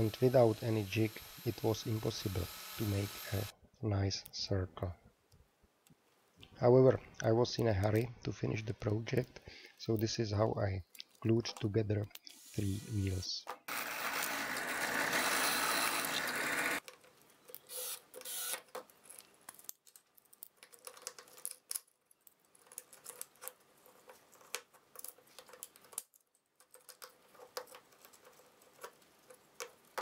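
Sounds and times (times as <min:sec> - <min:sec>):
drill press boring wood: 0:00.0 - 0:03.5, 0:12.3 - 0:16.8, 0:17.7 - 0:18.6.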